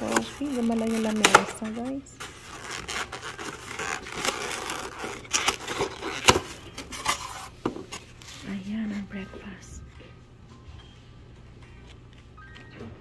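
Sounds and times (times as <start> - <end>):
foam scraping and rubbing: 0.0 - 9.0.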